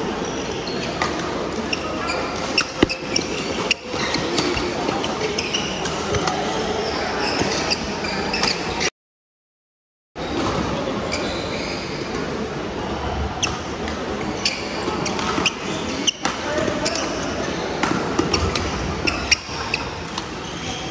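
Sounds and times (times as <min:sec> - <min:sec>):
shoes squeaking on court floor: 0:00.2 - 0:08.9, 0:11.0 - 0:12.1, 0:14.2 - 0:20.9.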